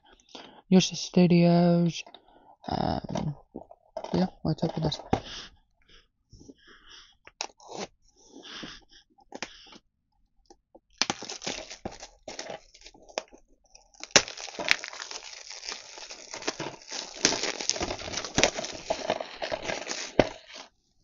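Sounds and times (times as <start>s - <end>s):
plastic wrap crinkling: 11.0s - 20.7s
plastic wrap snapping: 11.0s - 20.7s.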